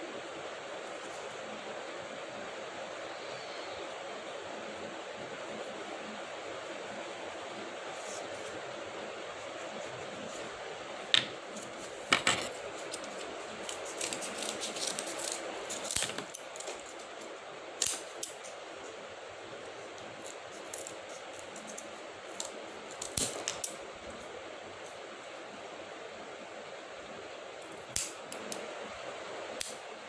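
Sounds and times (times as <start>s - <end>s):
steady background hiss: 0.0s - 30.0s
scissors cutting cardboard: 12.8s - 17.0s.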